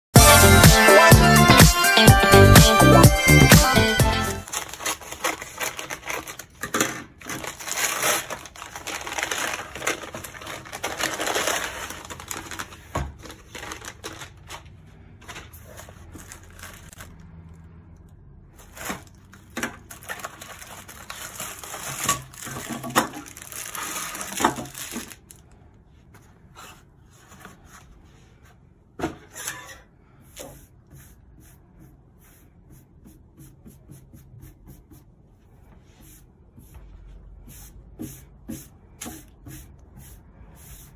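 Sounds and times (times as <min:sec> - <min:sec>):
paper mailer tearing and crinkling: 0:04.3 - 0:17.4, 0:18.6 - 0:25.4
plastic bags rustling: 0:04.4 - 0:17.6, 0:18.5 - 0:25.6.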